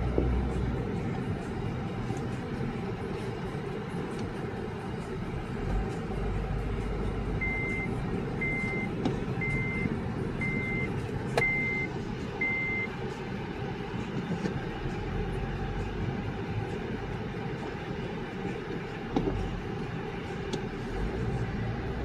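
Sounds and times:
car engine and road noise: 0.0 - 22.0
short electronic beeps: 7.4 - 12.9.

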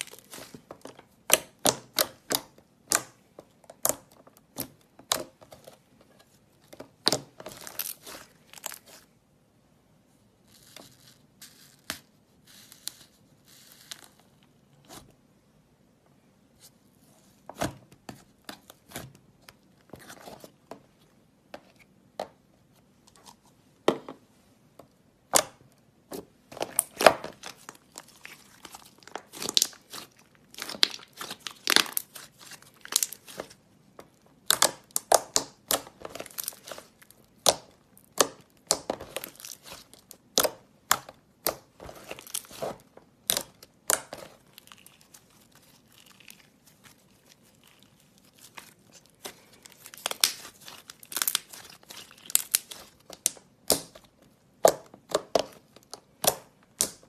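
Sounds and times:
slime clicking and popping: 34.4 - 41.6, 49.9 - 57.0.

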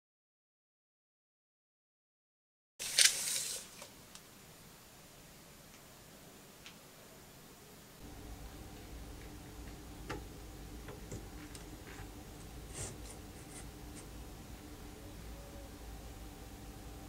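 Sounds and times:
steady low hum: 7.9 - 17.0.

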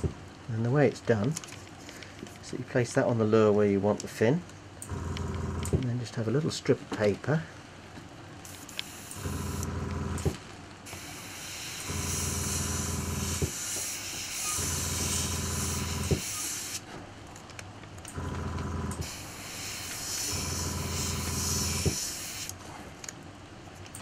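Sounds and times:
low motor hum: 4.9 - 5.8, 9.2 - 10.4, 11.8 - 13.6, 14.4 - 16.2, 18.0 - 19.5, 20.2 - 22.0
airbrush air hiss: 8.5 - 9.6, 10.9 - 16.9, 19.0 - 22.5.

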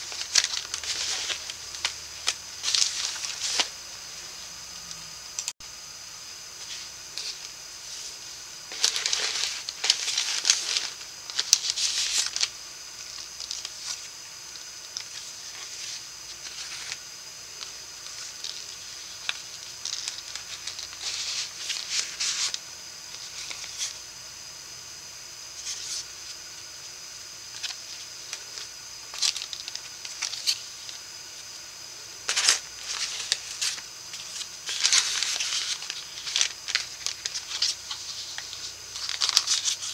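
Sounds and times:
paper rustling and sliding: 0.0 - 4.4, 6.6 - 14.1, 15.0 - 17.0, 17.6 - 24.0, 25.6 - 26.4, 32.3 - 39.9.

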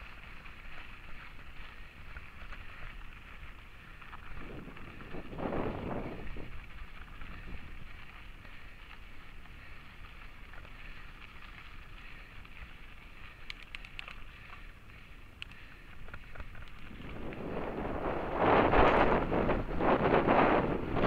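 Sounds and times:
bike clicks and rattles: 0.0 - 21.0
bike rolling over gravel trail: 0.0 - 21.0
wind noise on microphone: 3.8 - 9.8, 15.5 - 21.0.

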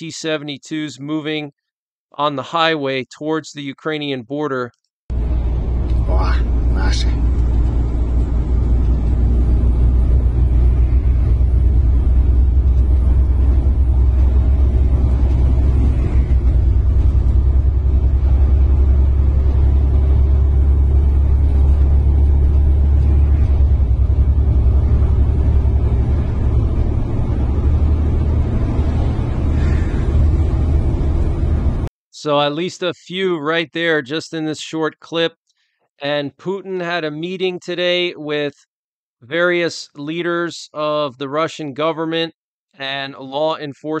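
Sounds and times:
engine and road rumble: 5.1 - 31.9.

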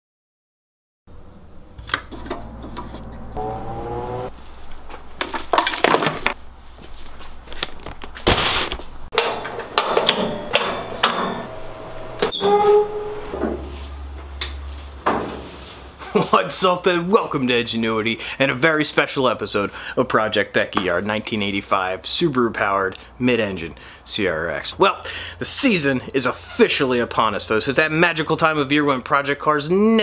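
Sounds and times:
low steady hum: 1.2 - 4.6.

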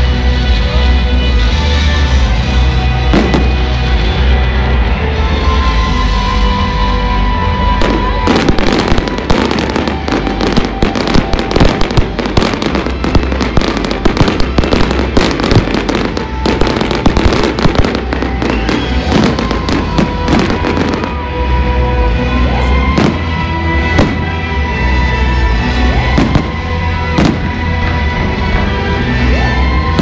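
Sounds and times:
music: 0.0 - 30.0
fireworks crackling and banging: 3.0 - 4.2, 7.6 - 21.5, 22.6 - 24.6, 25.8 - 28.6.

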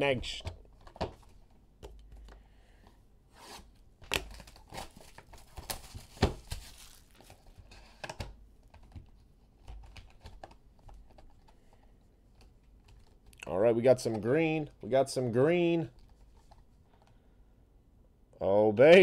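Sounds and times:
plastic shrink-wrap tearing and crinkling: 4.4 - 7.3.

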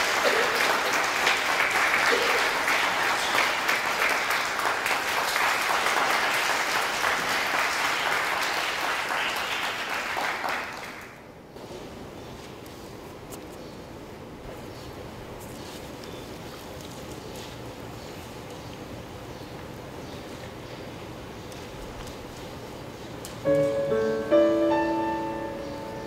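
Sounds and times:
audience applauding: 0.0 - 11.3.

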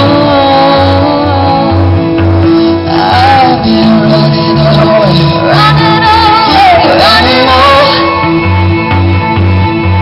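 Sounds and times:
woman singing: 0.0 - 8.3
live rock band: 0.0 - 10.0.

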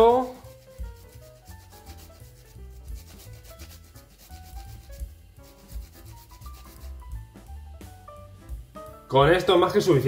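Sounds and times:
soft background music: 0.0 - 10.0
ginger rasping on a metal grater: 0.5 - 7.0.

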